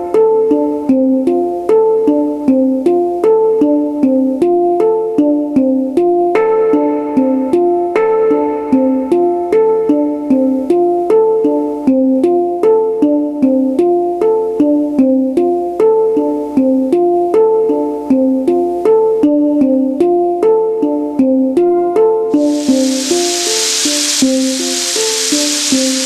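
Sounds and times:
hang drum notes: 0:21.6 - 0:26.0.

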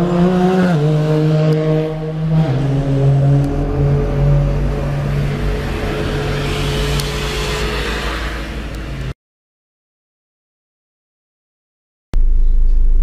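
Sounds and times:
bus engine humming: 0:00.0 - 0:09.2
low rumble: 0:01.9 - 0:09.2.

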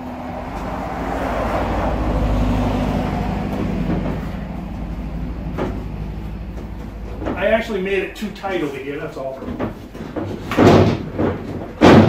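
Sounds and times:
vehicle driving past: 0:00.0 - 0:10.0.

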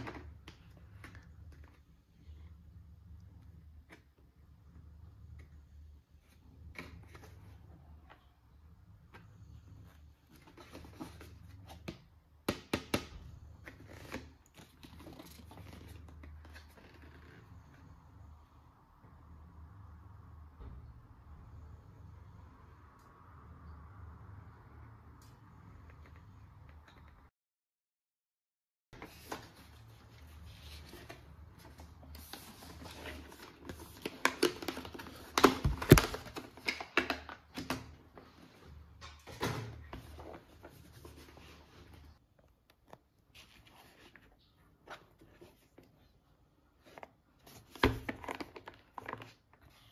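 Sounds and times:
packaging rustling and scraping: 0:13.6 - 0:17.5, 0:29.0 - 0:37.0.

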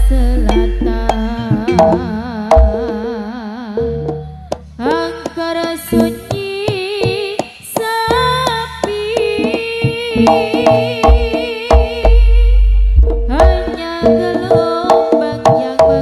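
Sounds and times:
deep sustained low tones: 0:00.0 - 0:04.9, 0:11.9 - 0:14.2
melodic line with vibrato: 0:00.0 - 0:06.3
drum strikes: 0:00.0 - 0:16.0.

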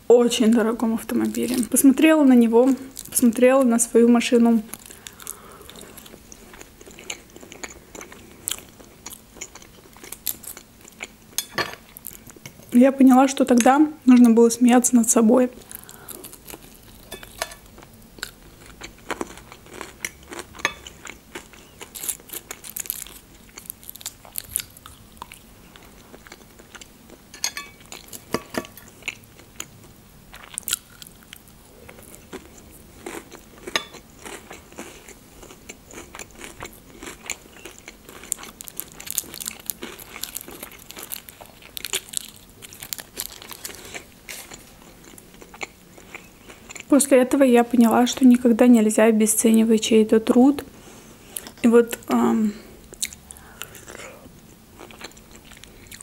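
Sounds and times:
person chewing crunchy food: 0:04.7 - 0:12.7, 0:15.6 - 0:46.9, 0:52.8 - 0:56.0.

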